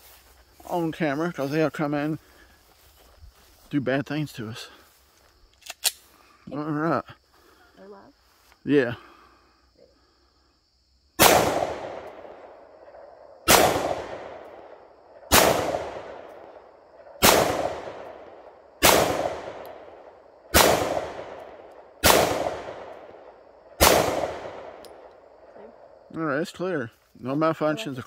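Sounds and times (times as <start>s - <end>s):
pistol shots with echo: 11.2s - 12.6s, 13.5s - 16.5s, 17.2s - 25.1s.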